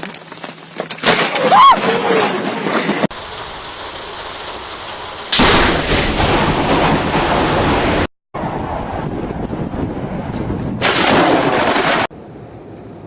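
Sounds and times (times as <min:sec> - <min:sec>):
steady rain: 0:03.1 - 0:08.1
loud thunderclap: 0:05.3 - 0:12.1.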